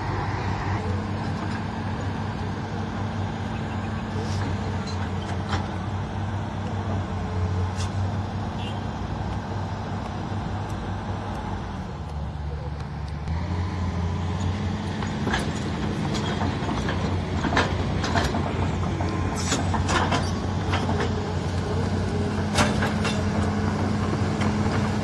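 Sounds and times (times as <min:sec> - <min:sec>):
excavator diesel engine running: 0:00.0 - 0:25.0
metallic clanks and knocks: 0:15.0 - 0:21.2, 0:22.4 - 0:23.6.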